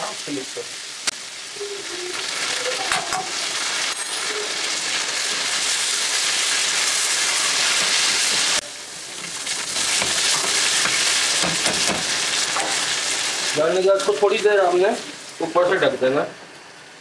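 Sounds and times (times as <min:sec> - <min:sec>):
chicken sizzling in hot oil: 0:00.0 - 0:17.0
spatula turning food in pan: 0:01.0 - 0:14.4.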